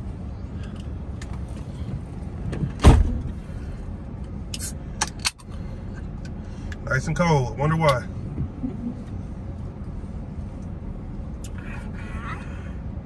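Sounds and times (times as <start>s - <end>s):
loud thump: 2.7s - 3.2s.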